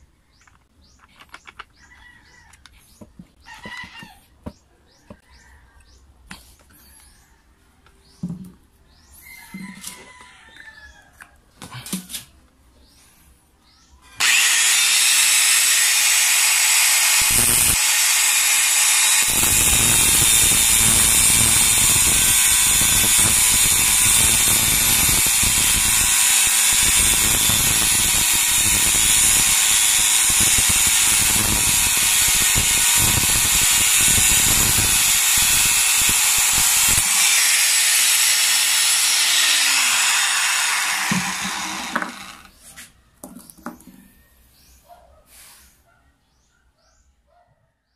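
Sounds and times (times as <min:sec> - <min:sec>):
grinder cutting steel: 0:14.1 - 0:42.6
angle grinder running: 0:14.2 - 0:42.5.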